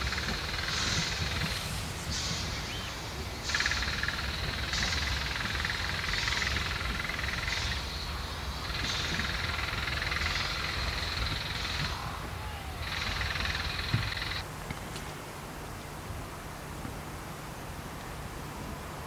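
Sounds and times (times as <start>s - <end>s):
low rumble: 0.0s - 6.6s
steam locomotive chuffing: 0.0s - 14.4s.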